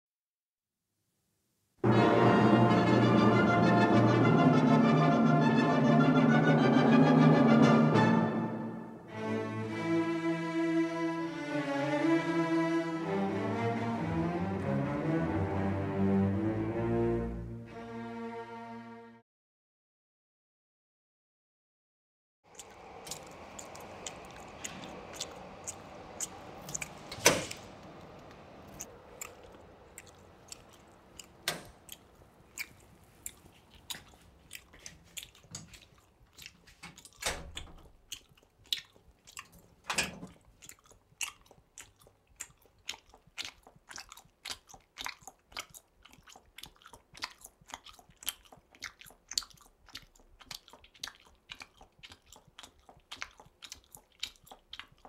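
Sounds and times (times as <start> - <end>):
person chewing with crunching: 22.5 - 55.0.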